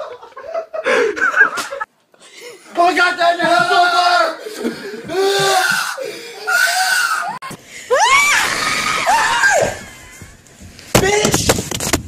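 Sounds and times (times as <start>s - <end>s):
person screaming: 5.1s - 9.8s.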